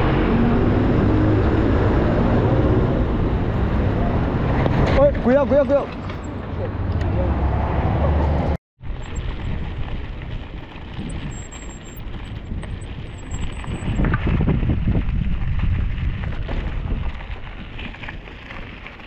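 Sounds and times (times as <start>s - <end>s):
wind buffeting microphone: 8.8s - 19.0s.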